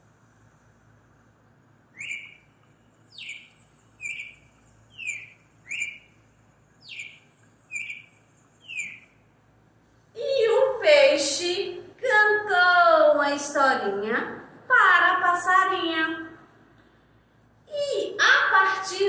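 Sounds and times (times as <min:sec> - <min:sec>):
bird chirping whistles: 0:01.9 - 0:09.3.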